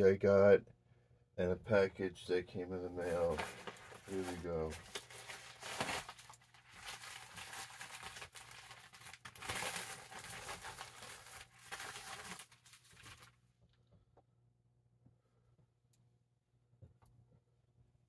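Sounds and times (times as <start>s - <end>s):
paper envelope rustling: 3.0s - 13.4s
plastic packaging crinkling: 3.0s - 13.4s.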